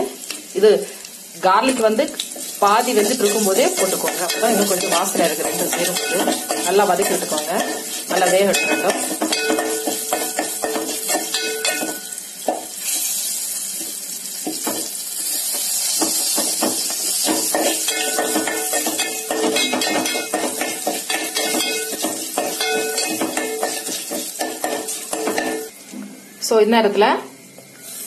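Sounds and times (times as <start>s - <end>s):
spices sizzling in hot oil: 0.0s - 25.9s, 27.4s - 28.0s
steel spatula scraping pan: 2.4s - 12.2s, 15.3s - 25.7s.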